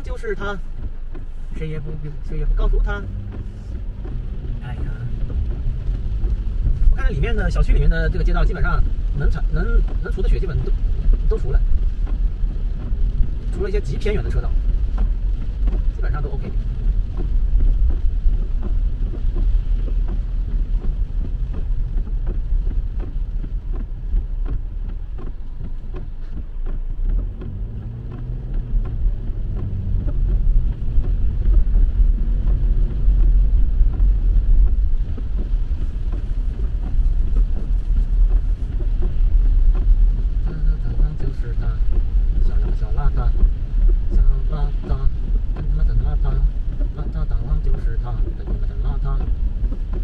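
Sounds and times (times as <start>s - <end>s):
car interior road rumble: 0.0s - 50.0s
rain ticking on windshield: 0.0s - 50.0s
windshield wipers sweeping: 0.0s - 50.0s
tyre hiss on wet road: 0.1s - 17.6s.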